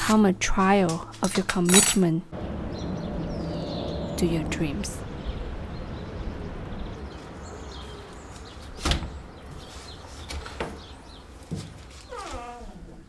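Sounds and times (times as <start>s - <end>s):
steady low rumble: 2.3s - 8.3s.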